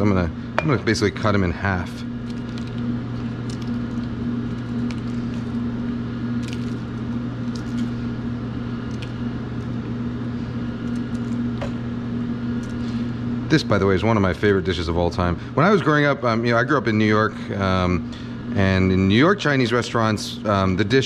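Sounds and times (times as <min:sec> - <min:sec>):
kitchen machinery hum: 0:00.0 - 0:21.0.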